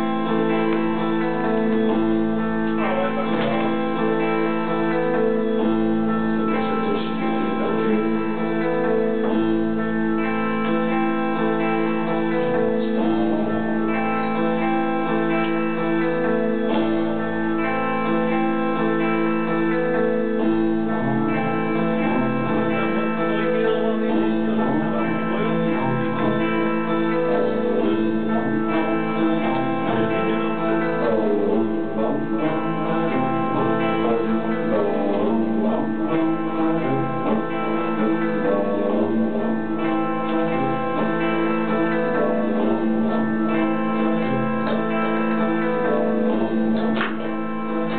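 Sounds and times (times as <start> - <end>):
plucked string melody: 0.0 - 47.9
steady held drone: 0.0 - 47.9.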